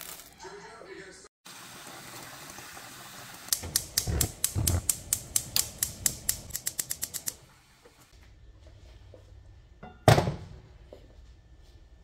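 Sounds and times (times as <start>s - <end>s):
gas stove igniter clicking: 3.5s - 7.4s.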